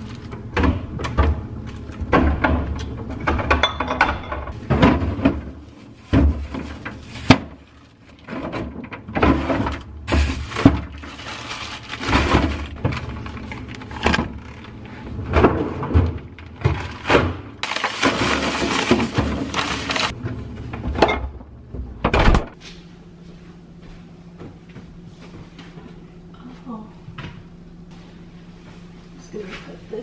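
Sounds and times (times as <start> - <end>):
bottles knocking on shelves: 2.0 - 5.5
plastic bags rustling: 4.6 - 20.2.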